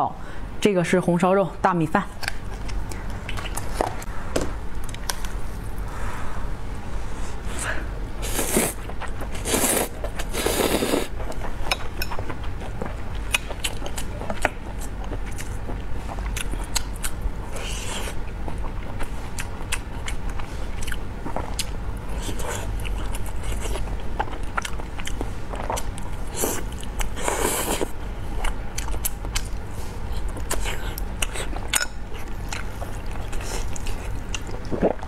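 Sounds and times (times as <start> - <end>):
wet chewing and lip smacks: 2.2 - 4.0, 28.4 - 29.6, 30.2 - 35.0
slurping noodles: 8.2 - 11.1.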